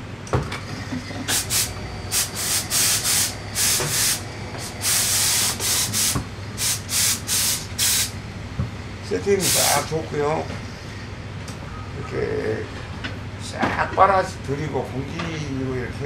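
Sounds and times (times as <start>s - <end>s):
air nozzle hissing bursts: 1.2s - 8.2s, 9.4s - 9.9s.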